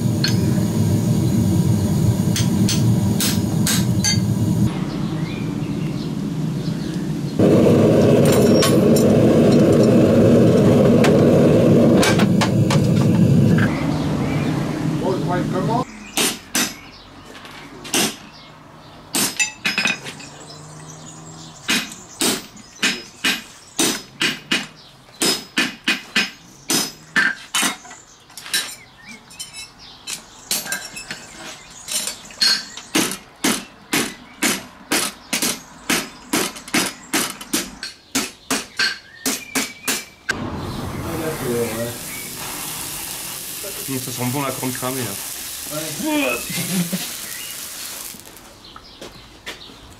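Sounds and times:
hammer striking horseshoe on anvil: 0:02.3 - 0:04.2, 0:16.2 - 0:16.8, 0:19.2 - 0:20.0, 0:21.7 - 0:27.8.

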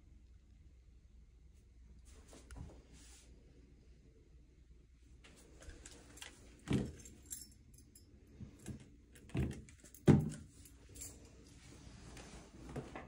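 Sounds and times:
clicks and knocks of fixtures: 0:08.5 - 0:10.6.

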